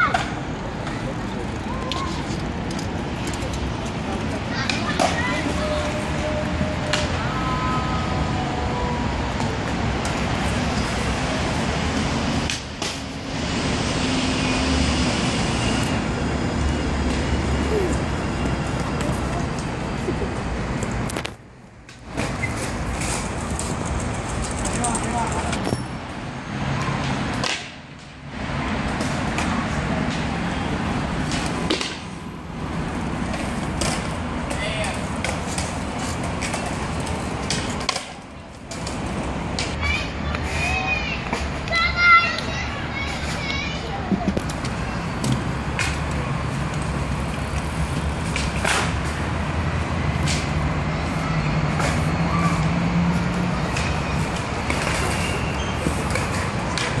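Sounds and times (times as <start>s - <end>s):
skate wheels rolling on concrete: 0.0s - 57.0s
large vehicle engine humming: 42.4s - 57.0s.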